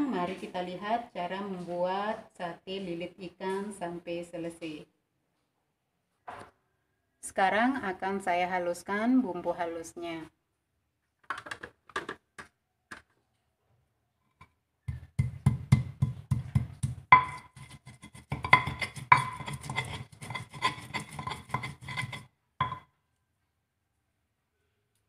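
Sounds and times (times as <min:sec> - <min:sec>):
stone pestle pounding in mortar: 0:14.9 - 0:22.8
ingredients dropping into mortar: 0:14.9 - 0:22.9.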